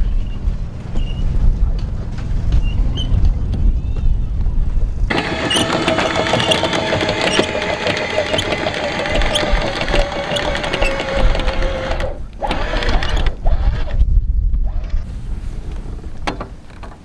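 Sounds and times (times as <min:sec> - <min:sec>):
anchor windlass motor whine: 0:05.1 - 0:15.1
anchor chain clattering: 0:05.2 - 0:13.2.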